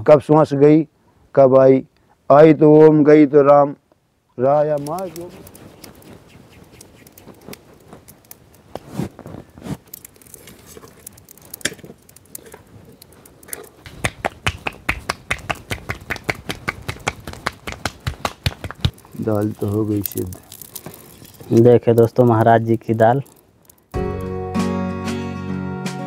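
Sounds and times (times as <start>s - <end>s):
dough slapped between palms: 13.9s - 19.0s.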